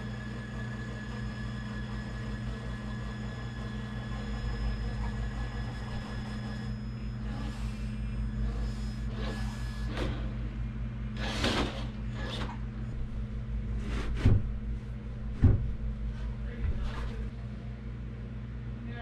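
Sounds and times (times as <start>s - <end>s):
toy car electric motor whirring: 0.0s - 10.3s, 11.2s - 12.5s.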